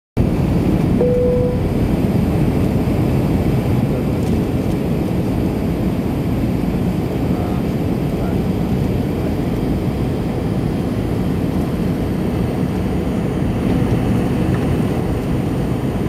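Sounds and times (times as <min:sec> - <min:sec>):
jet engines low rumble: 0:00.2 - 0:16.0.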